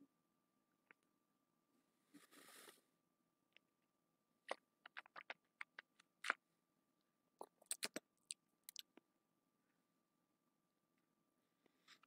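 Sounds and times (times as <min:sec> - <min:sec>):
lip smacks and tongue clicks: 0:04.5 - 0:06.4, 0:07.4 - 0:09.0.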